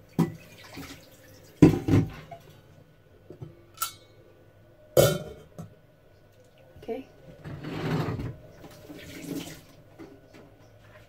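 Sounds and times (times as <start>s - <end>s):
dull knocks of cookware: 1.6s - 2.2s
pot lid metallic clink: 3.8s - 4.1s.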